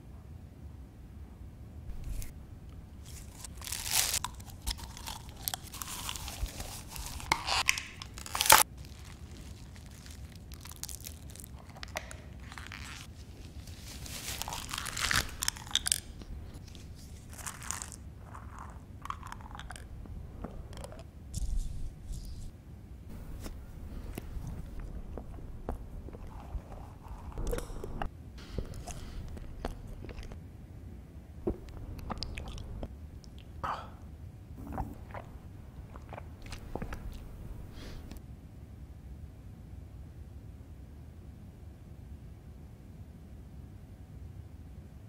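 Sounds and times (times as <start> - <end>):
plastic being chewed: 1.9 - 22.5, 23.1 - 30.4, 31.4 - 33.5, 34.6 - 38.2.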